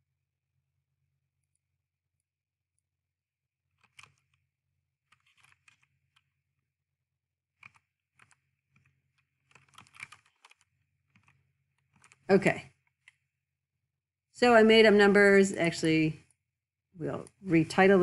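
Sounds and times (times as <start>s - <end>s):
computer keyboard typing: 3.7s - 4.4s, 5.1s - 6.3s, 7.6s - 12.3s.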